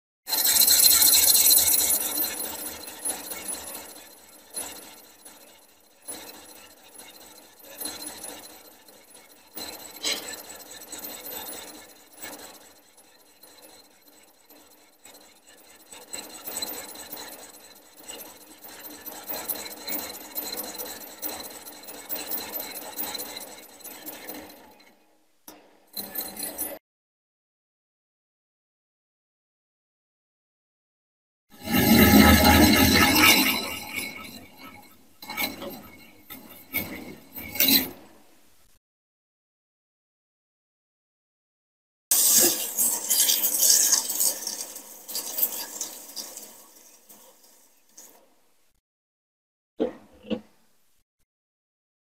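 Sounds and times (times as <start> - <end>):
cutting tool scraping metal: 0.3 - 24.9, 31.6 - 38.2, 42.1 - 48.2
machine steady whine: 0.3 - 25.0, 31.6 - 38.6.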